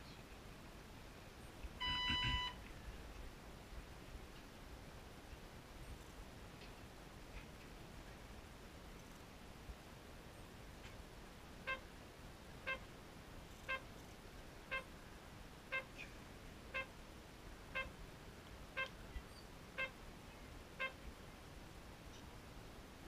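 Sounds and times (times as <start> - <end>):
electronic short beeps: 1.8 - 2.6.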